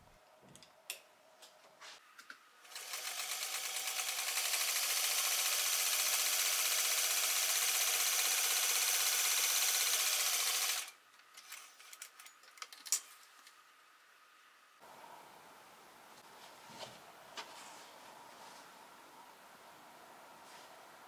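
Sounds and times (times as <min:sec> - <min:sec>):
sewing machine stitching: 0:02.7 - 0:10.9.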